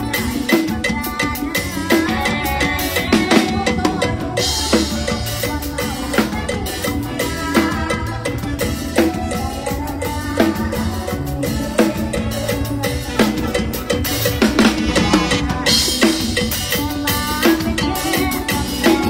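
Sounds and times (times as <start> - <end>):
drum kit playing steady beat: 0.0 - 19.0
instruments holding pitched notes: 13.4 - 16.0.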